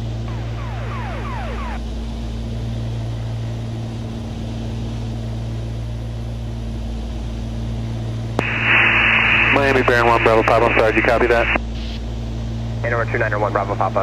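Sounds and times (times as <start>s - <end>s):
aircraft engines cabin drone: 0.0s - 14.0s
falling swept distress tone: 0.3s - 1.8s.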